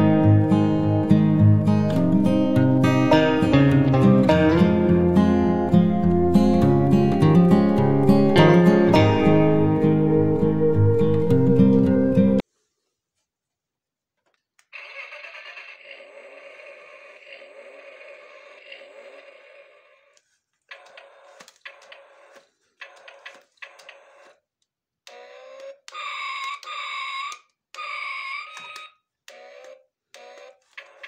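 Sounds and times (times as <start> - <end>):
wavering siren-like tones: 4.2 - 12.4
continuous buzzy toy sound: 14.6 - 31.0.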